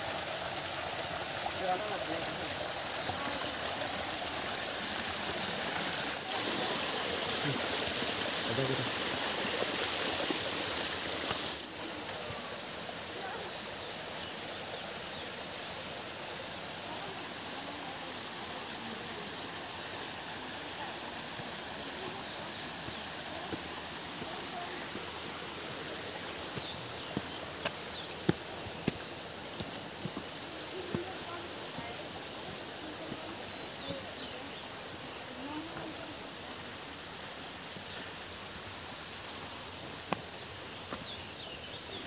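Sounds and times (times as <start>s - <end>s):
forest stream rushing: 0.0s - 42.0s.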